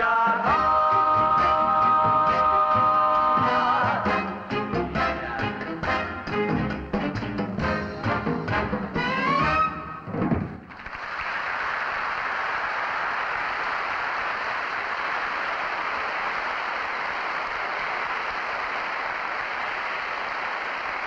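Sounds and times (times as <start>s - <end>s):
audience applauding: 10.5s - 21.0s.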